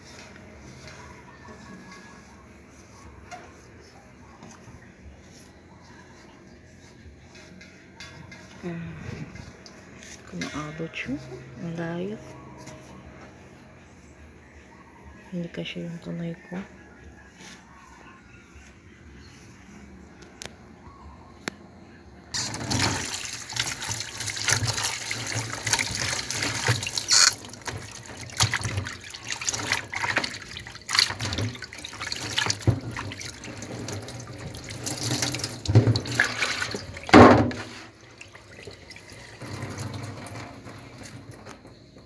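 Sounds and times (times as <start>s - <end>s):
sponge scrubbing plastic tub: 0.0s - 7.6s, 22.4s - 41.6s
tap water running into sink: 22.4s - 41.2s.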